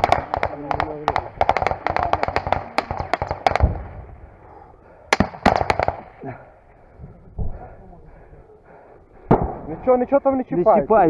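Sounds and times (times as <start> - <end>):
rapid rifle shots: 0.0 - 4.0, 5.1 - 6.2.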